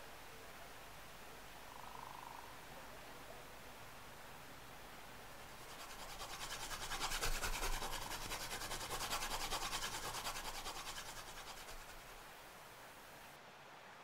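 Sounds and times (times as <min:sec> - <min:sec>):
pencil scratching on paper: 0:05.6 - 0:12.2.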